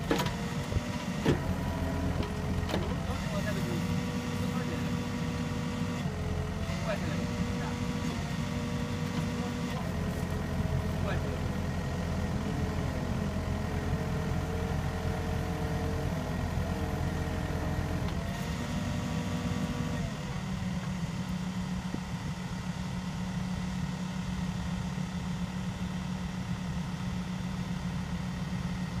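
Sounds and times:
excavator engine and hydraulics: 0.0 - 29.0.

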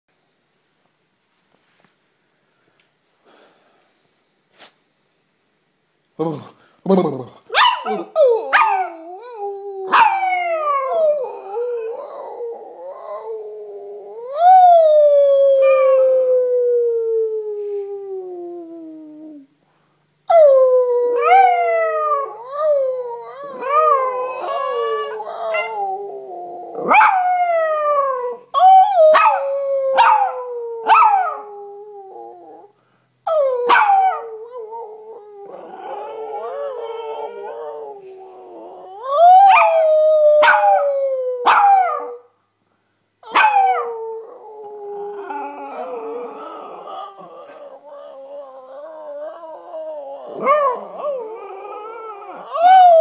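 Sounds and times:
dog howling: 20.3 - 32.7, 33.3 - 42.2, 43.2 - 53.0
man howling: 20.3 - 32.7, 33.3 - 42.2, 43.3 - 53.0.

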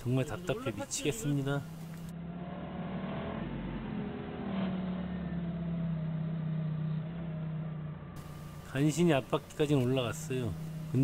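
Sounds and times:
forklift engine under load: 8.1 - 11.0.

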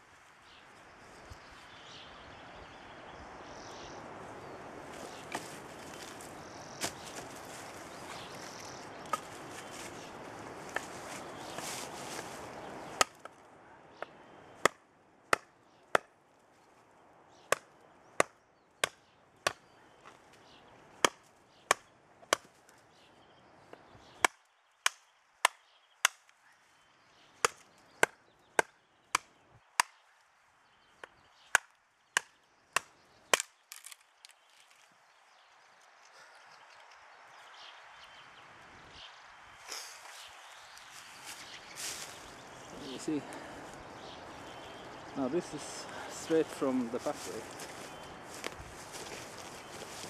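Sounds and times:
knife chopping into wood: 21.0 - 22.6.

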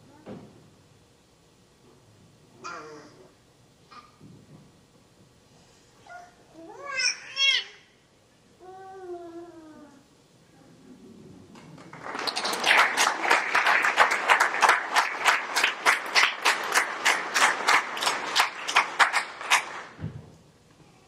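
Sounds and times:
audience applause: 11.6 - 20.0.

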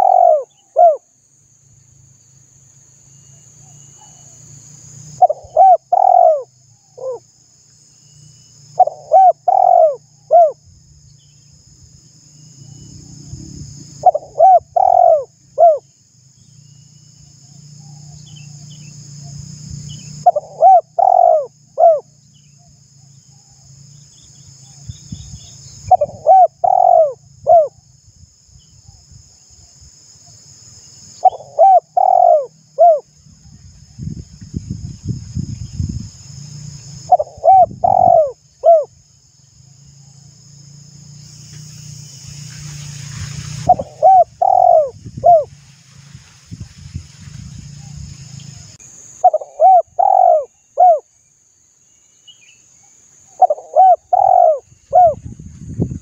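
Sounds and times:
dove cooing: 0.0 - 1.0, 5.2 - 7.2, 8.8 - 10.6, 14.0 - 15.8, 20.2 - 22.1, 25.9 - 27.8, 31.2 - 33.1, 37.1 - 38.9, 43.6 - 45.5, 49.2 - 51.1, 53.4 - 55.2
high hiss: 41.0 - 49.3.

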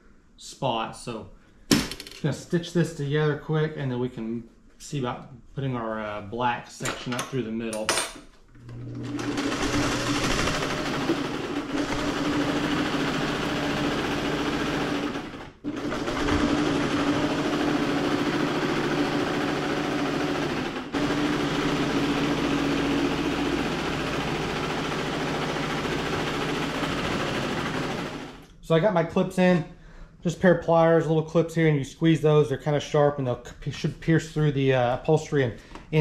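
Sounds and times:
electric sewing machine running: 8.6 - 28.4.

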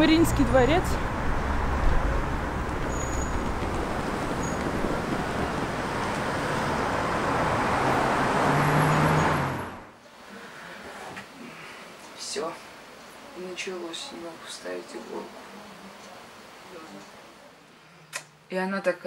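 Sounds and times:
vehicle engine: 0.0 - 10.0
city street traffic: 0.0 - 10.9.

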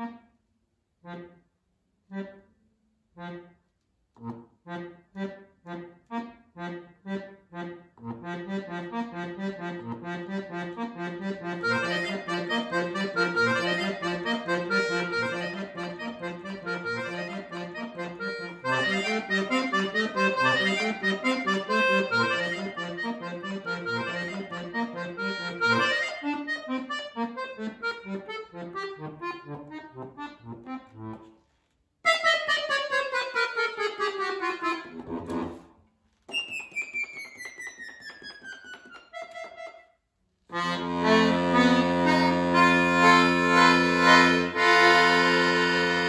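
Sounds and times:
accordion playing lively tune: 2.1 - 2.5, 3.2 - 3.5, 4.2 - 31.4, 32.1 - 35.7, 36.3 - 39.9, 40.5 - 46.0.

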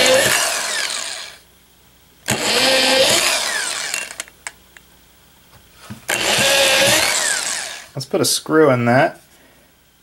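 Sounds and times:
electric drill boring into wood: 0.0 - 1.4, 2.3 - 4.3, 6.1 - 8.0.

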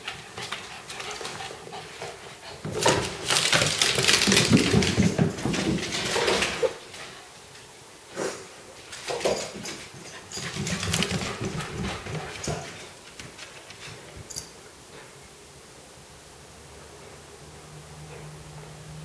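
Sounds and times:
animals scampering on hardwood floor: 0.0 - 7.7, 8.8 - 14.3.

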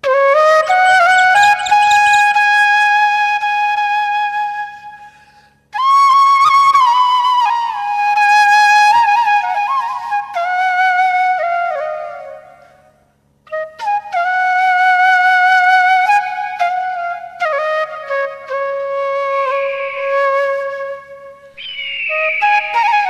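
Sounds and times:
solo flute melody: 0.0 - 5.0, 5.8 - 12.8, 13.5 - 23.0.

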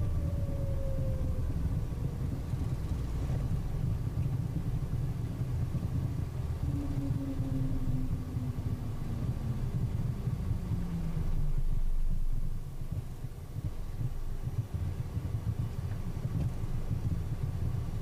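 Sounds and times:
jet cockpit low rumble: 0.0 - 18.0
whine falling in pitch: 6.5 - 12.6
brief steady tone: 6.6 - 9.2.

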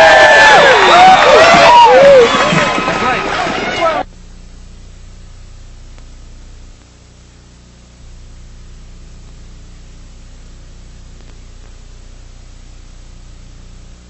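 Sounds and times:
tape hiss: 3.5 - 14.0
low electrical hum: 4.0 - 14.0.

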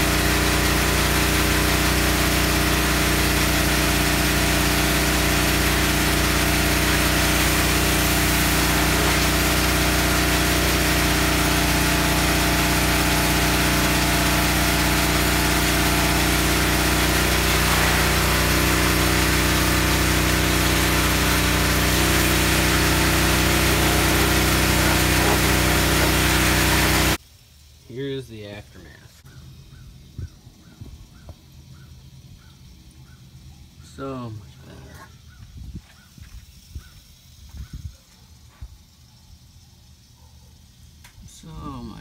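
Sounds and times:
pressure washer motor hum: 0.0 - 27.2
water spray hissing: 0.0 - 27.2.

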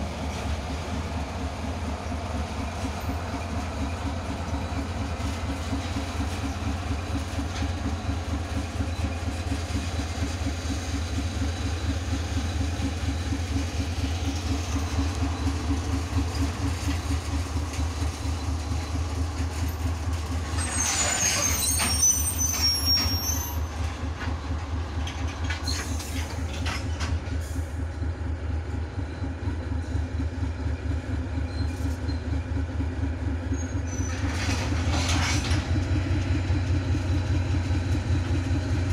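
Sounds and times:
locomotive engine drone: 0.0 - 38.9
high metallic squeal: 20.5 - 23.7.

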